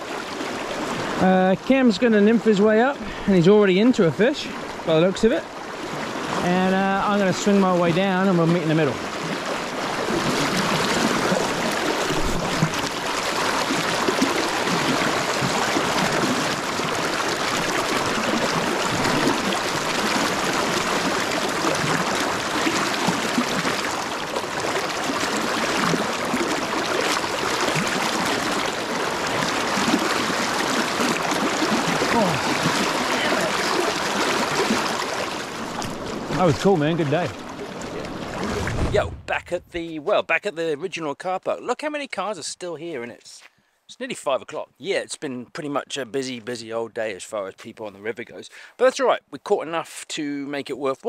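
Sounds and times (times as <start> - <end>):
river current rushing: 0.0 - 40.0
whitewater splashing: 0.0 - 40.2.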